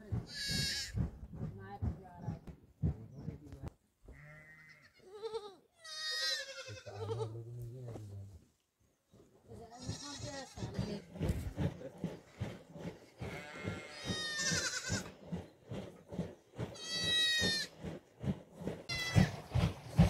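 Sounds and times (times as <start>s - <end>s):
goats bleating: 0.3s - 1.0s, 4.1s - 7.4s, 9.7s - 11.1s, 13.2s - 15.1s, 16.8s - 17.7s, 18.9s - 19.3s.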